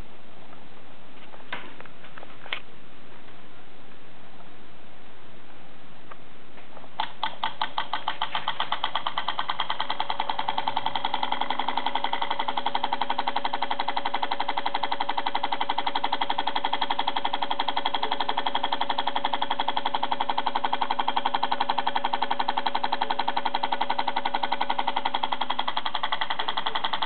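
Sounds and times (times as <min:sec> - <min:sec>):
motor hum: 0:06.9 - 0:27.0
rapid even clicking: 0:07.0 - 0:27.0.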